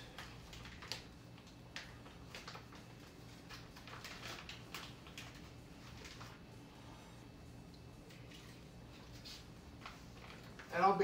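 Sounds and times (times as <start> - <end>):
plastic bag crinkling: 0.0 - 6.5, 9.1 - 11.0
faint small crackles: 0.0 - 6.6.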